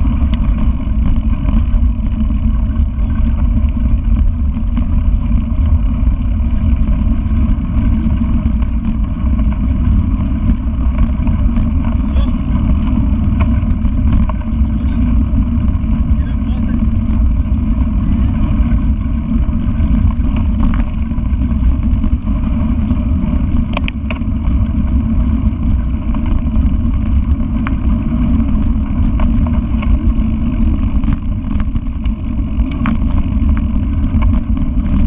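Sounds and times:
bike rattles and clicks: 0.0s - 35.0s
wind buffeting microphone: 0.0s - 35.0s.

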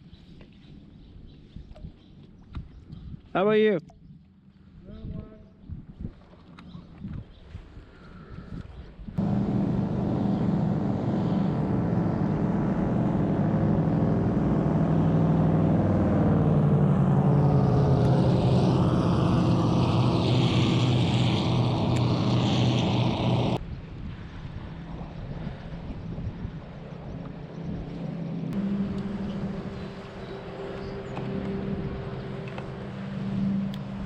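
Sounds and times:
speedboat engine drone: 9.2s - 23.6s, 24.2s - 34.0s.

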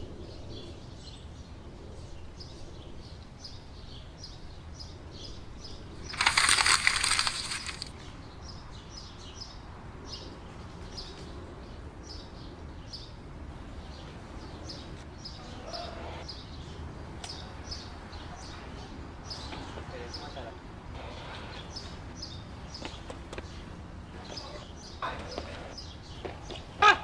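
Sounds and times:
small birds chirping: 0.0s - 20.7s, 21.3s - 27.0s
plastic bag crinkling: 6.1s - 8.0s.

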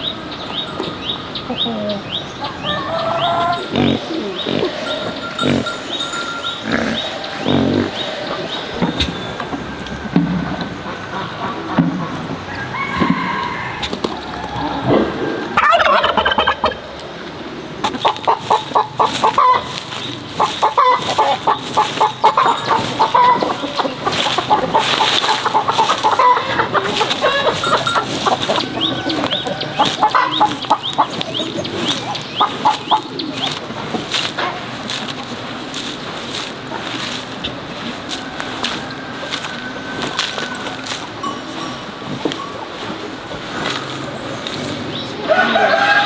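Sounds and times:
chickens clucking: 0.0s - 46.0s
broom sweeping dirt: 17.8s - 46.0s.

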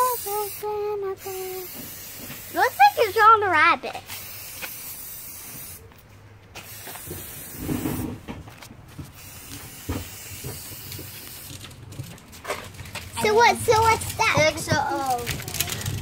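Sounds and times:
spray-paint can hissing: 0.0s - 3.2s, 4.0s - 5.8s, 6.6s - 8.1s, 9.1s - 11.7s.

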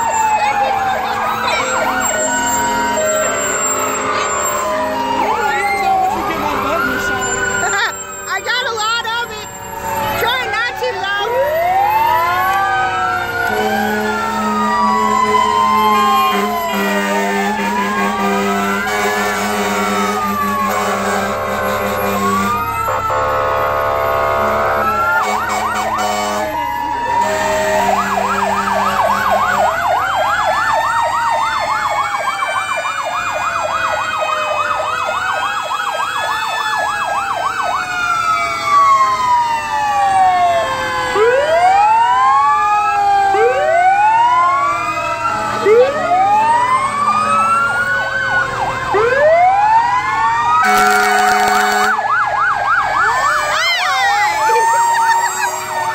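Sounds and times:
fire truck sirens: 0.0s - 55.9s
horn blasts: 2.0s - 5.4s, 13.4s - 26.6s, 27.2s - 29.7s, 50.6s - 52.1s.

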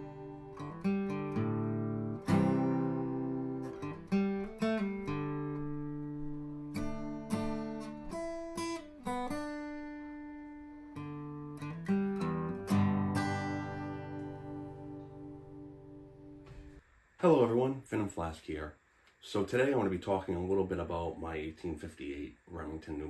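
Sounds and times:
acoustic guitar playing: 0.0s - 16.8s.

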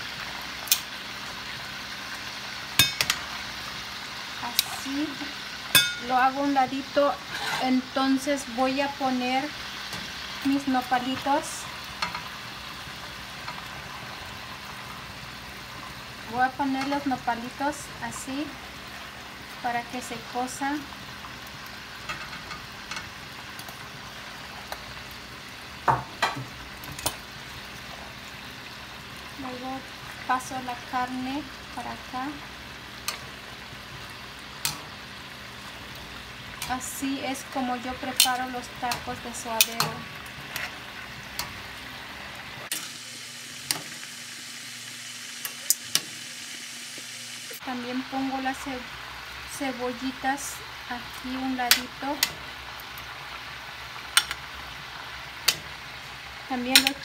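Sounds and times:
food sizzling in a pan: 0.0s - 57.0s
metal tongs clicking on pan: 0.7s - 0.9s, 2.8s - 3.2s, 4.5s - 4.8s, 12.0s - 12.3s, 16.7s - 17.0s, 22.1s - 23.8s, 26.8s - 27.2s, 33.0s - 33.3s, 34.6s - 34.9s, 38.1s - 40.7s, 41.3s - 41.6s, 45.4s - 46.1s, 51.1s - 52.4s, 54.1s - 54.4s, 55.4s - 55.8s, 56.7s - 57.0s
metal tongs clacking: 2.8s - 3.2s, 5.7s - 6.1s, 38.1s - 40.7s, 51.7s - 52.4s, 54.1s - 54.4s, 55.4s - 55.7s, 56.7s - 57.0s.

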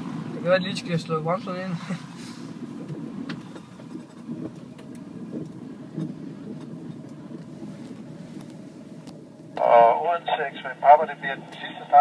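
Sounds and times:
propeller engine droning: 2.5s - 12.0s.

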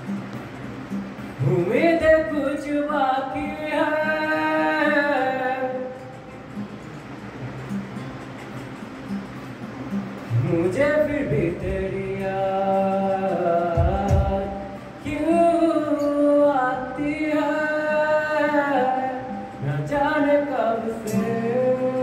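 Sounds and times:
strummed acoustic guitar: 0.0s - 22.0s
man singing: 1.4s - 6.2s, 10.3s - 22.0s.

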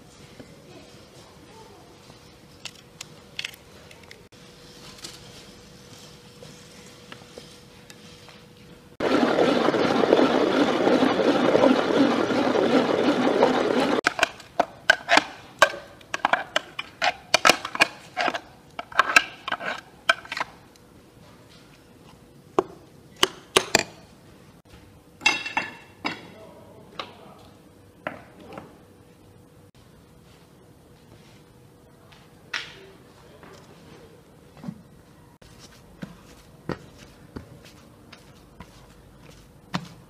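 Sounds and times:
dishes and utensils clinking: 25.2s - 26.3s.

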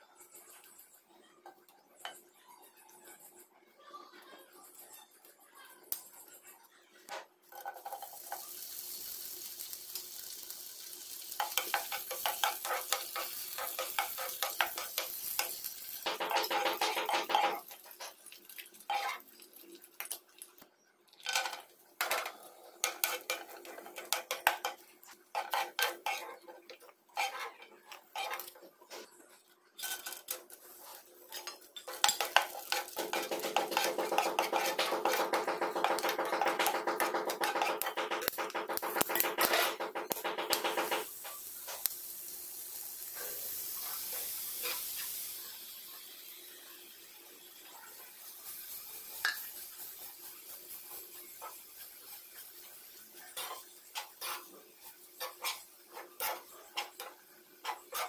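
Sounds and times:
food sizzling in hot fat: 7.4s - 58.0s
metal spatula scraping frying pan: 11.4s - 18.2s, 21.3s - 29.2s, 29.8s - 41.4s, 49.2s - 58.0s.

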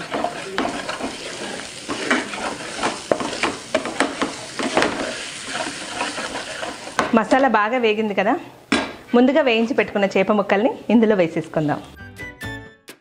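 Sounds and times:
spatula scraping pan: 0.0s - 7.4s
spices sizzling in hot oil: 0.0s - 8.1s.

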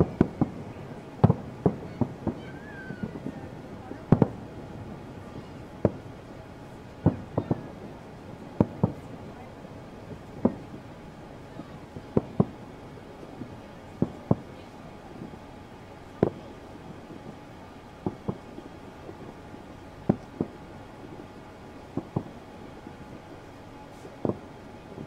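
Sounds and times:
fireworks bangs: 0.0s - 10.9s, 13.2s - 15.4s
low background rumble: 0.0s - 25.0s.

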